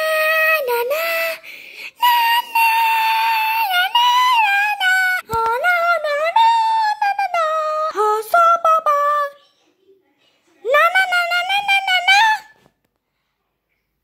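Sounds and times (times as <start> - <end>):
child singing wordlessly: 0.0 - 9.4.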